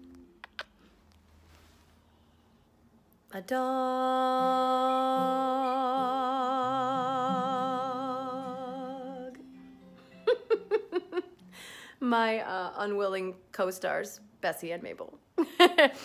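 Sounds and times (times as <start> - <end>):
woman singing long note: 3.4 - 9.4.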